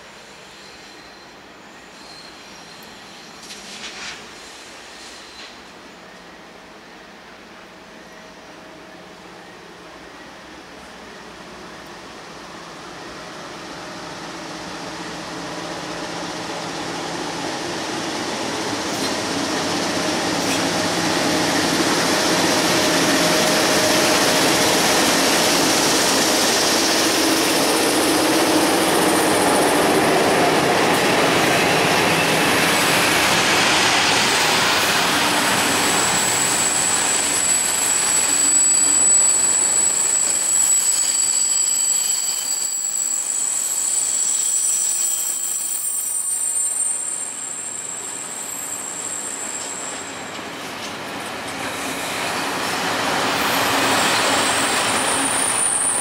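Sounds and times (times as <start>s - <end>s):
steel wheels squealing: 0.3s - 5.6s, 22.4s - 50.8s, 51.6s - 56.0s.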